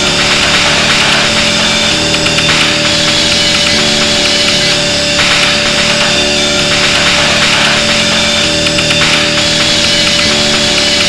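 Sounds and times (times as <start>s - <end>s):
harsh drone noise music: 0.0s - 11.0s.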